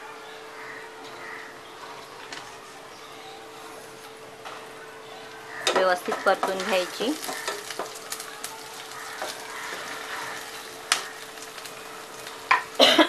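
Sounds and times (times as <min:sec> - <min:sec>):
spatula scraping and tapping pan: 0:05.6 - 0:08.2
hot oil sizzling in a pan: 0:05.6 - 0:12.8.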